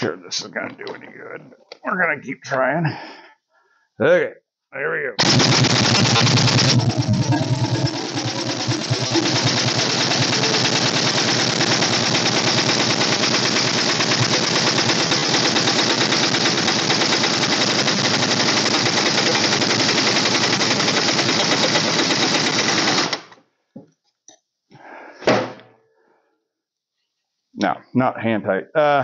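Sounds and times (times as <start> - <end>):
pneumatic impact wrench hammering: 5.2 - 23.4.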